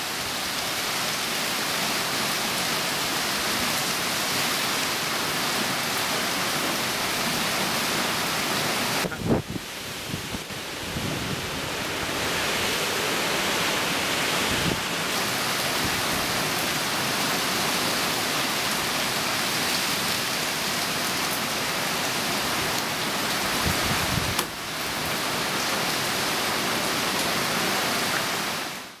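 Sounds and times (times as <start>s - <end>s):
heavy rain on foliage: 0.0s - 29.0s
gusting wind: 3.2s - 20.9s, 21.6s - 26.7s.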